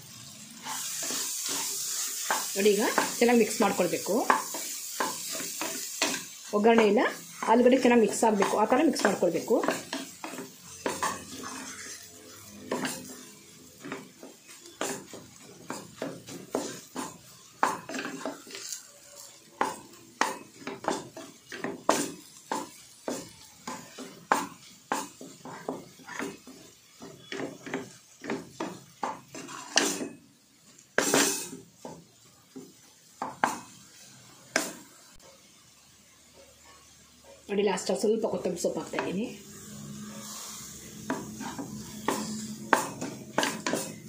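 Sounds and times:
spatula scraping pot: 0.6s - 22.4s, 23.6s - 28.6s, 29.2s - 30.0s, 38.9s - 44.0s.

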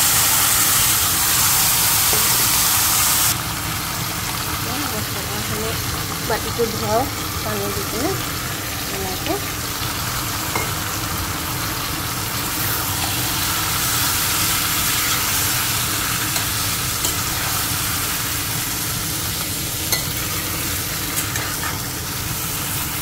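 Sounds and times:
chicken sizzling in hot oil: 0.0s - 23.0s
spatula stirring food: 12.6s - 23.0s.

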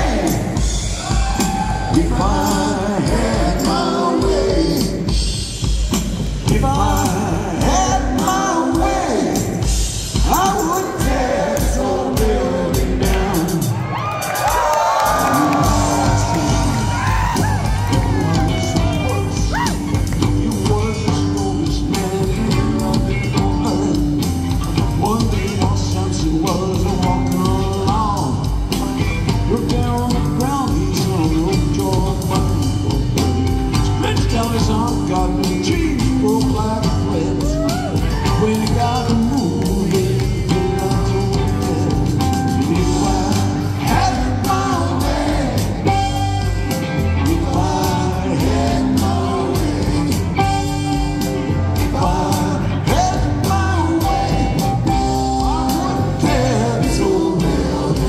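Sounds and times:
live rock band playing: 0.0s - 58.0s
sliding guitar lead line: 15.3s - 58.0s.

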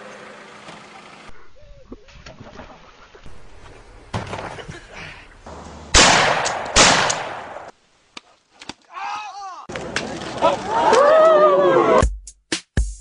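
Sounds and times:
rifle gunshots: 5.9s - 7.7s.

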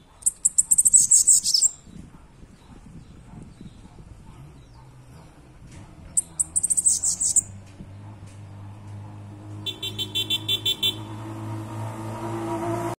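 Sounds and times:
vehicle engine humming: 3.8s - 12.9s.

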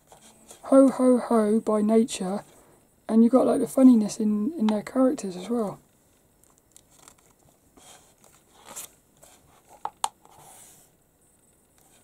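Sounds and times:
paper page rustling: 6.4s - 10.9s.

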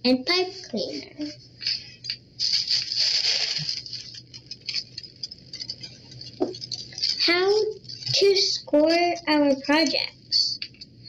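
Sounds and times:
tissue paper rustling: 1.6s - 8.4s.

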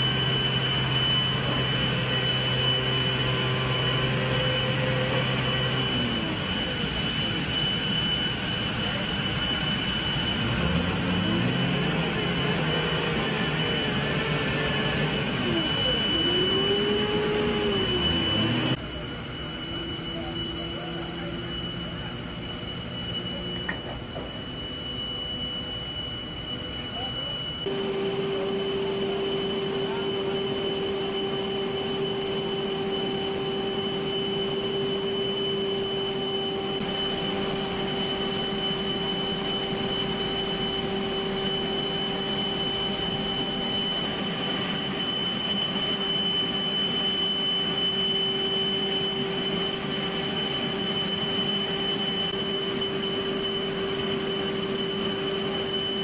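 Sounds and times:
low hum: 0.0s - 44.8s
jet turbine whine: 0.0s - 56.0s.

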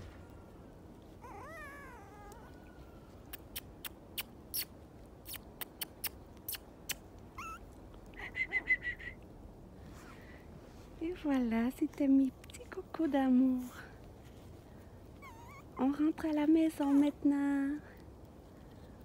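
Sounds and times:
puppies whining: 0.0s - 3.8s, 7.3s - 8.8s, 15.1s - 15.9s
high whimpers: 1.2s - 3.7s, 7.4s - 7.6s, 15.2s - 15.8s
puppy yelping: 1.2s - 4.7s, 5.3s - 8.9s, 15.2s - 15.9s.

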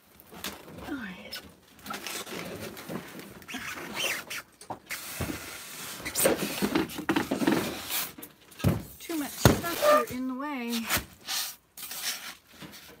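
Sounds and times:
rustling and scraping of items: 0.0s - 13.0s.

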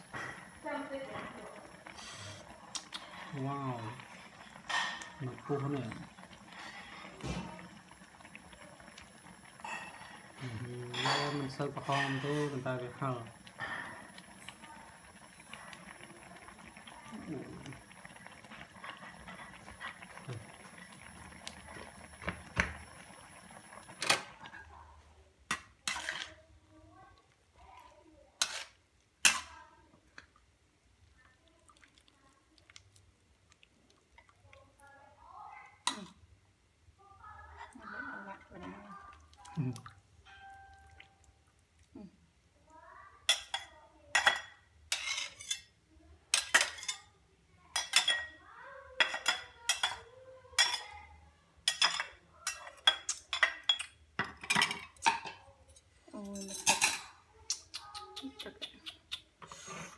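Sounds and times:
metal utensils clinking on pan: 10.9s - 12.6s, 43.3s - 45.7s, 51.6s - 57.2s
noodles dripping: 30.2s - 36.0s, 38.0s - 42.1s.

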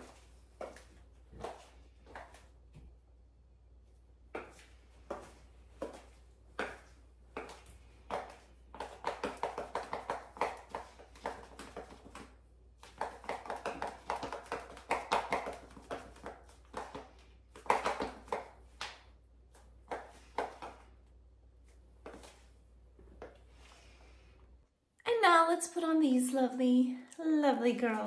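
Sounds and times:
heels clicking on tile floor: 0.0s - 2.9s, 4.2s - 21.0s.

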